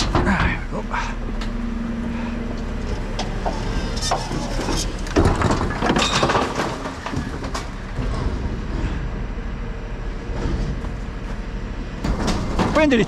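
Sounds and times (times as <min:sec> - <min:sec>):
truck engine running: 0:00.0 - 0:13.0
rubbish and bin clattering: 0:02.9 - 0:09.2, 0:10.2 - 0:13.0.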